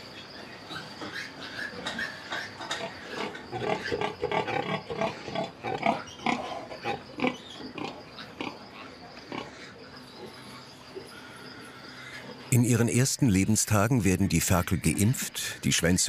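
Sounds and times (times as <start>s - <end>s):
pigs grunting: 0.7s - 12.5s.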